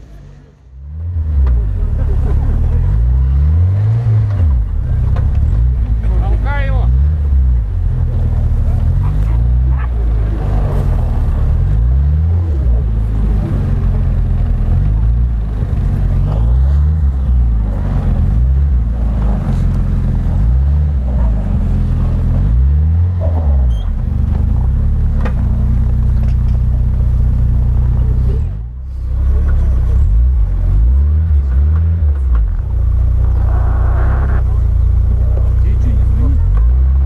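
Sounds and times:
car engine revving under load: 0.0s - 37.0s.

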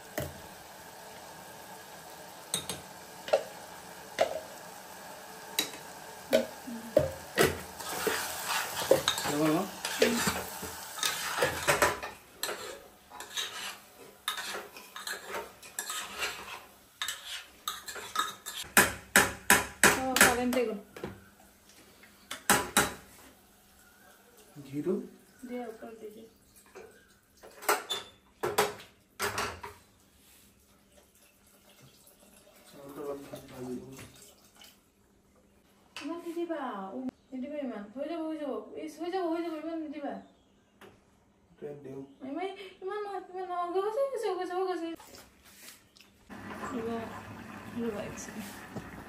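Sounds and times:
faint sizzle: 0.0s - 18.6s, 20.0s - 28.2s, 43.8s - 49.0s
metal spoon scraping a pot: 7.8s - 18.7s.

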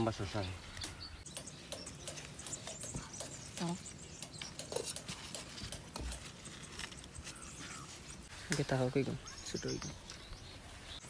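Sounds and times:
leaves rustling and crackling: 3.2s - 9.2s.

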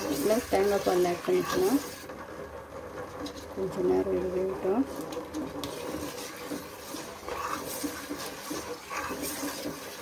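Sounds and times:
spoon scraping a pot: 0.0s - 1.9s, 5.6s - 10.0s
liquid sloshing in a pot: 0.0s - 3.6s, 4.9s - 10.0s.

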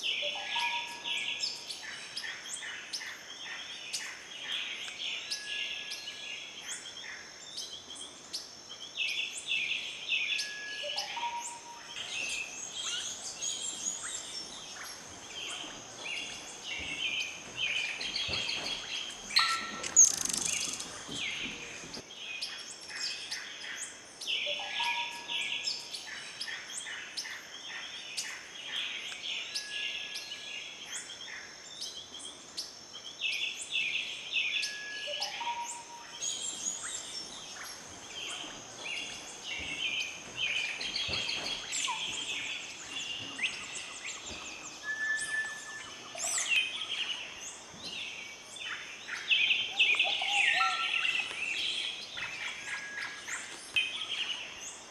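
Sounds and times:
birds chirping and calling: 0.0s - 32.4s, 33.0s - 54.9s.

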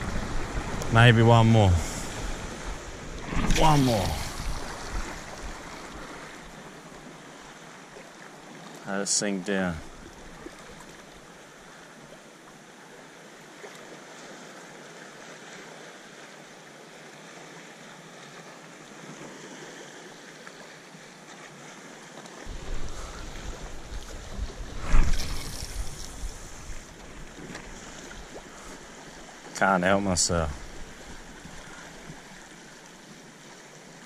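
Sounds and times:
wind rumbling on microphone: 0.0s - 5.8s, 22.5s - 28.7s
small waves lapping on rocks: 0.0s - 34.0s.

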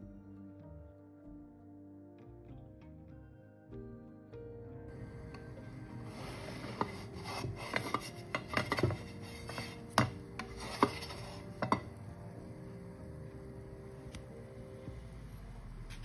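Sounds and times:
spatula scraping frying pan: 4.9s - 14.2s.

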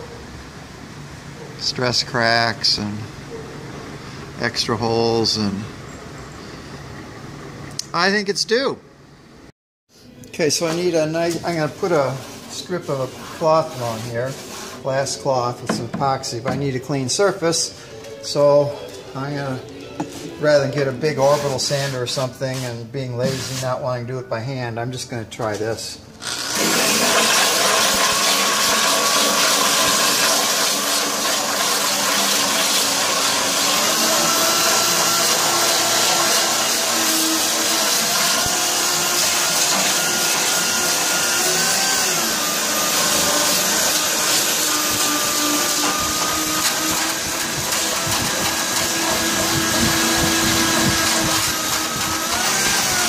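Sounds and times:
electric drill sanding: 26.2s - 53.0s.

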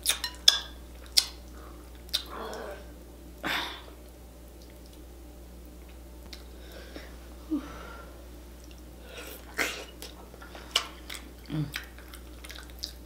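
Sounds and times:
wet mouth chewing smacks: 1.0s - 2.3s, 9.4s - 13.0s.

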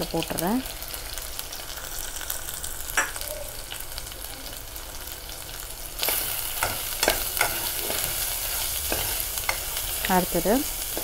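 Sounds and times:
food sizzling in hot oil: 0.0s - 11.0s
metal spoon scraping a pot: 6.1s - 10.0s.

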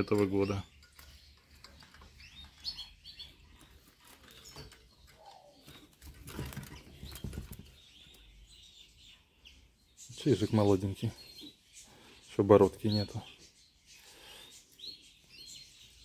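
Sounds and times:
bird fluttering in a cage: 5.6s - 7.9s
cage rustling and knocking: 5.9s - 7.9s.

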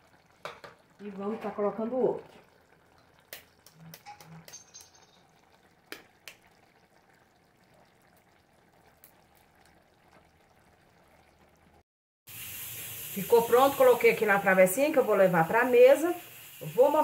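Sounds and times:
metal fork tapping eggshell: 4.0s - 5.2s
faint steady hiss: 12.3s - 17.0s.

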